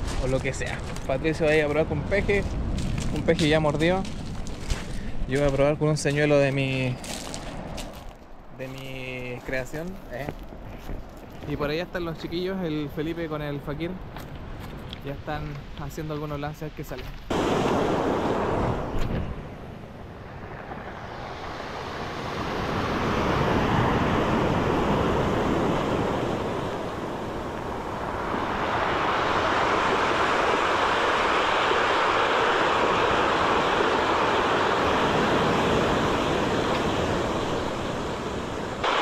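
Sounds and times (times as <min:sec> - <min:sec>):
surf washing up cobble beach: 0:14.6 - 0:39.0.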